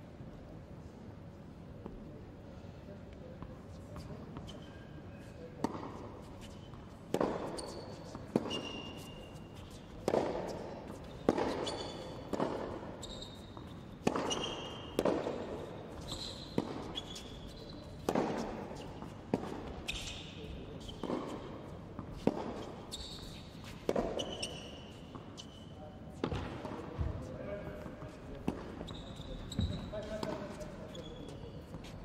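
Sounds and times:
shoes squeaking on court: 0:03.8 - 0:32.0
tennis ball bouncing: 0:05.6 - 0:17.4, 0:18.0 - 0:20.2, 0:20.8 - 0:25.5, 0:29.6 - 0:30.4
racket hitting tennis ball: 0:06.9 - 0:17.4, 0:18.0 - 0:20.1, 0:20.8 - 0:25.5, 0:29.7 - 0:30.4.

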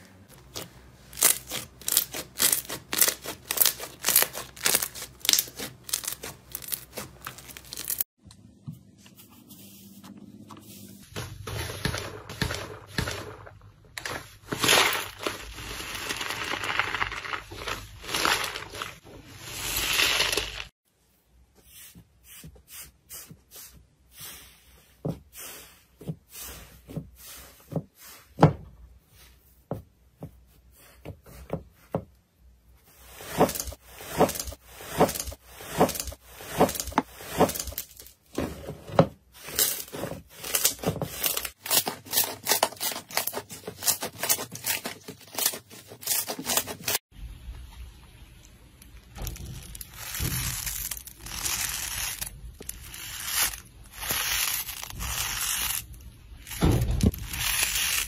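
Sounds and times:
wet slime squishing: 0:00.4 - 0:08.1.

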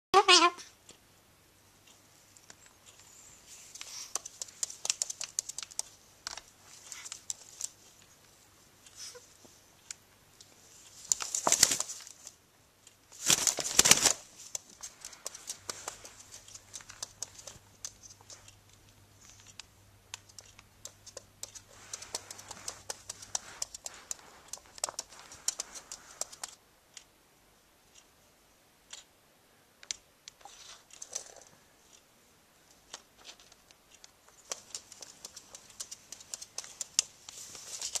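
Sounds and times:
bird clicking and tapping: 0:03.8 - 0:07.8, 0:13.2 - 0:26.6, 0:32.9 - 0:38.0
rustling bursts: 0:10.7 - 0:12.4, 0:13.1 - 0:18.6, 0:21.1 - 0:26.6, 0:34.3 - 0:38.0.

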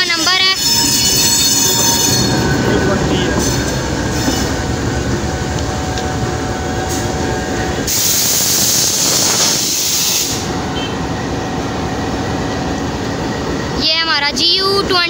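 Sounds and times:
diesel locomotive engine rumble: 0:00.0 - 0:15.0
loud hiss: 0:07.8 - 0:10.6.

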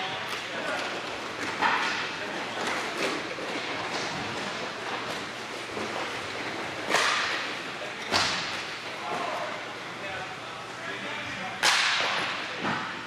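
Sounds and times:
hockey stick smacking puck: 0:06.9 - 0:07.4, 0:11.6 - 0:12.9.

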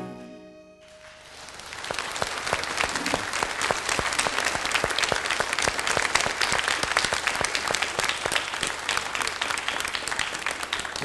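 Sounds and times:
audience applauding: 0:00.8 - 0:11.0.

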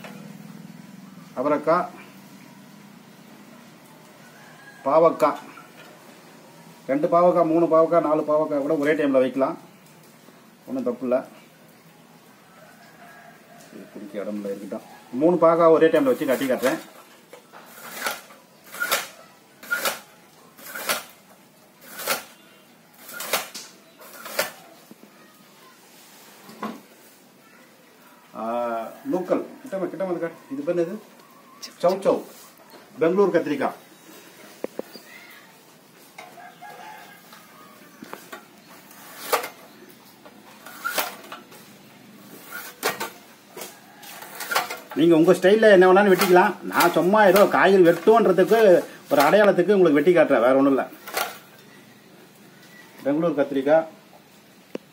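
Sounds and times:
vegetable cutter chopping: 0:17.7 - 0:21.2, 0:21.8 - 0:22.3.

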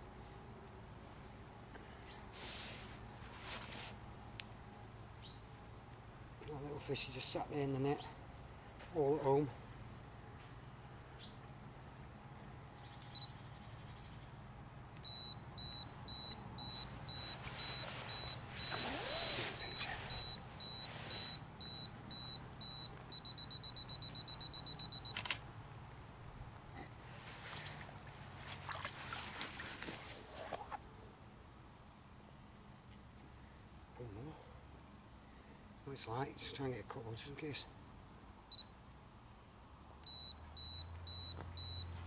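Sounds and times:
rustling from handling fish: 0:02.3 - 0:04.0, 0:16.6 - 0:23.2, 0:27.0 - 0:30.8
camera self-timer beeps: 0:13.0 - 0:13.4, 0:15.0 - 0:25.4, 0:40.0 - 0:42.0
camera shutter click: 0:25.1 - 0:25.4.

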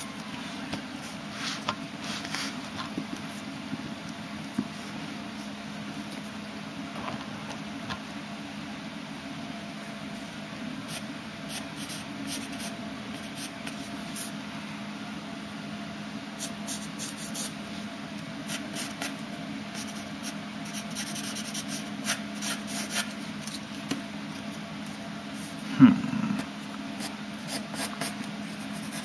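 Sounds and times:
pencil scratching on paper: 0:19.8 - 0:23.1, 0:27.0 - 0:29.0.

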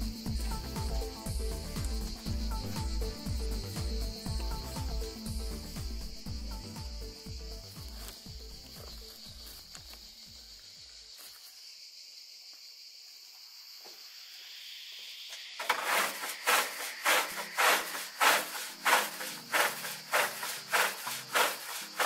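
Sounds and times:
rubbing strokes on wood: 0:15.6 - 0:22.0.

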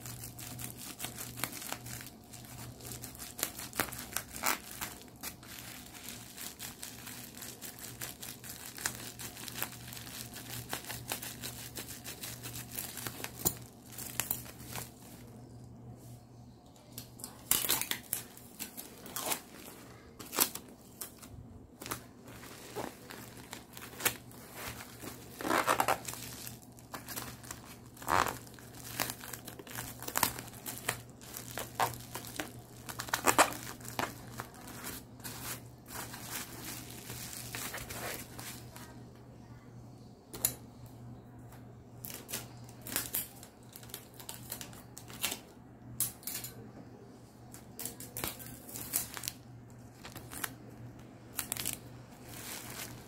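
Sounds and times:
plastic mailer crinkling: 0:00.0 - 0:15.4, 0:17.2 - 0:39.0, 0:48.2 - 0:53.0
scissors cutting plastic: 0:17.0 - 0:38.5.

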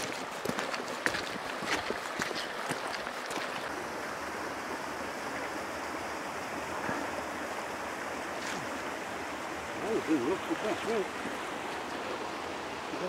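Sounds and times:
footsteps on gravel: 0:00.0 - 0:03.7
stream rushing over stones: 0:00.0 - 0:13.0.

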